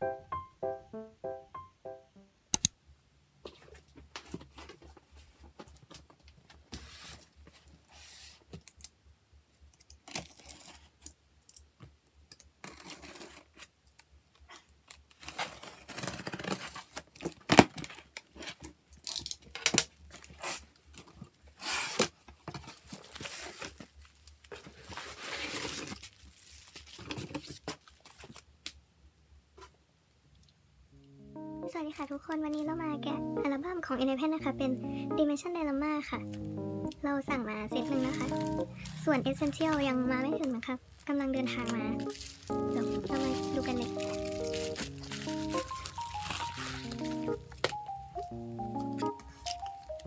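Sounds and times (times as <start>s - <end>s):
sharp click: 2.5s - 2.8s
cardboard scraping and rustling: 6.6s - 8.4s, 15.2s - 18.6s, 20.2s - 28.4s, 41.6s - 47.7s
packing tape tearing: 9.8s - 11.0s, 14.9s - 23.8s, 24.5s - 27.5s, 37.8s - 47.9s.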